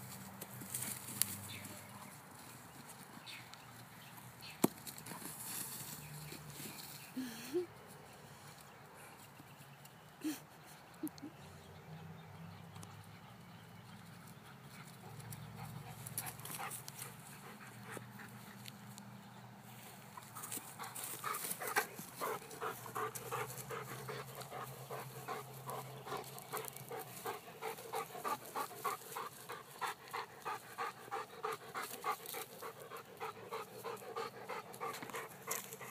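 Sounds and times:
dog panting hard: 0:14.4 - 0:18.8, 0:20.2 - 0:35.9.

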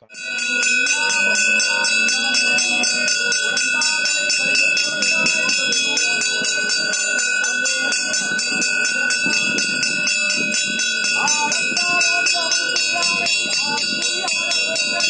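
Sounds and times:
crowd voices: 0:00.0 - 0:15.0
temple bell ringing rapidly: 0:00.0 - 0:15.0.

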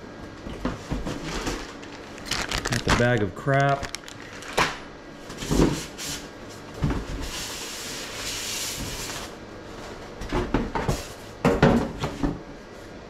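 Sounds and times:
packaging rubbing and sliding: 0:01.2 - 0:04.6.

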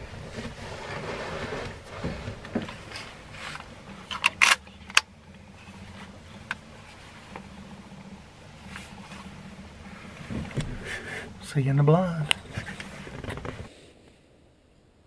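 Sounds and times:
faint low hum: 0:00.0 - 0:15.0
sharp clicks of gear: 0:02.4 - 0:05.4
fabric rustling: 0:12.4 - 0:13.7.

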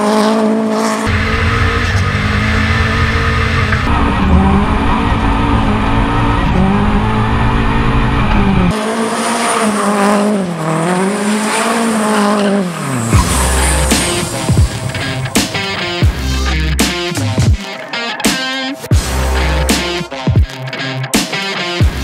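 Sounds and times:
car engine at high revs: 0:00.0 - 0:18.2
tyres squealing and skidding: 0:01.1 - 0:08.7, 0:10.7 - 0:20.0.

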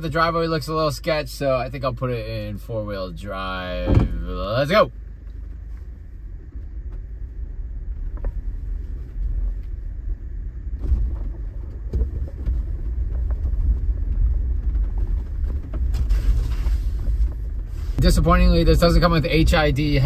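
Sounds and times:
vehicle low rumble: 0:00.0 - 0:20.0
knocks and clunks: 0:03.7 - 0:04.5, 0:10.7 - 0:20.0.

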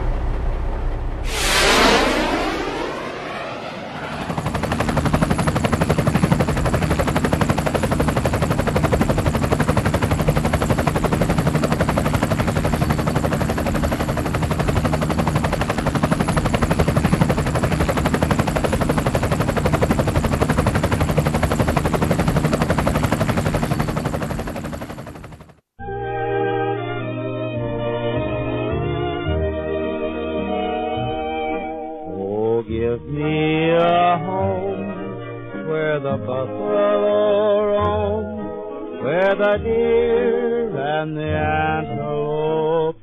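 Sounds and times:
whoosh: 0:00.0 - 0:04.4
helicopter rotor chopping: 0:01.2 - 0:25.6.

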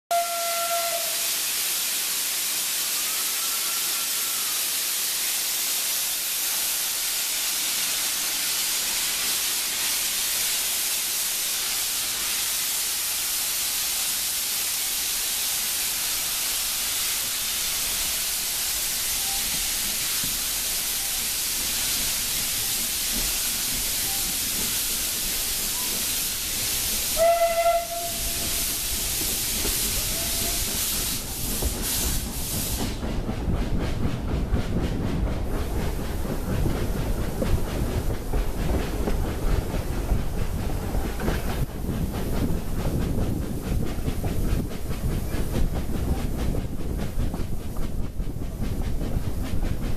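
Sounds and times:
steam train whistle blast: 0:00.1 - 0:01.7, 0:02.7 - 0:04.9, 0:27.1 - 0:29.0, 0:29.9 - 0:31.2
steam hissing from locomotive: 0:00.2 - 0:49.9.

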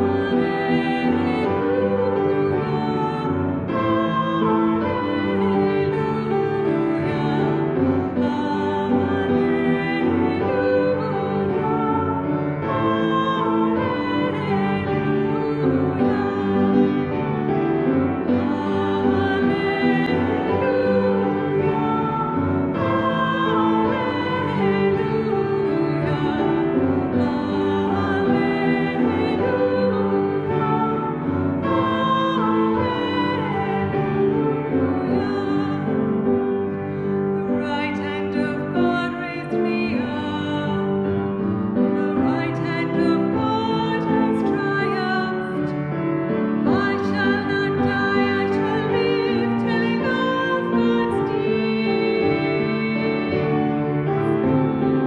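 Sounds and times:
woman singing slow melody: 0:00.0 - 0:17.0
person singing with vibrato: 0:00.0 - 0:46.0, 0:46.6 - 0:54.4.

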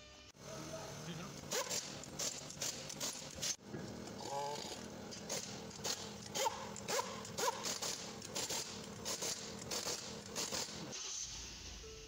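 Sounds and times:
impact wrench rattling: 0:01.5 - 0:03.6, 0:04.6 - 0:10.8.

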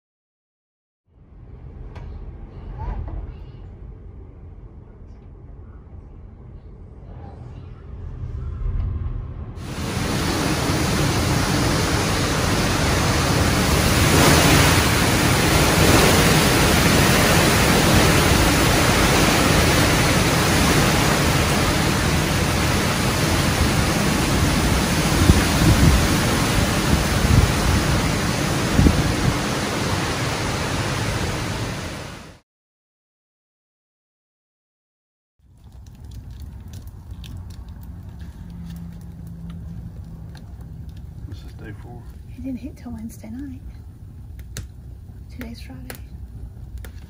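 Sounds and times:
low thumps: 0:08.0 - 0:10.4
howling wind and driving rain: 0:08.7 - 0:32.4, 0:35.6 - 0:42.2.

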